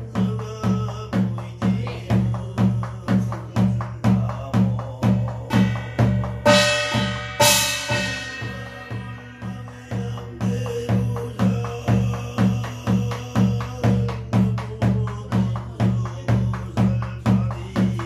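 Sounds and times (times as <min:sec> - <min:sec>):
barrel drum beaten with stick: 0:00.0 - 0:18.0
bright ringing drum strikes: 0:05.4 - 0:11.5.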